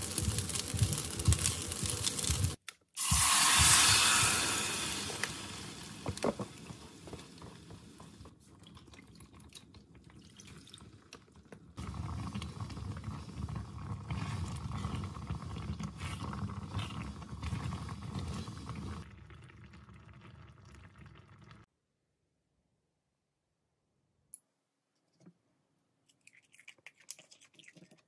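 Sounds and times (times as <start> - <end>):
sauce bubbling: 0.0 - 21.7
spatula stirring in pan: 11.8 - 19.0.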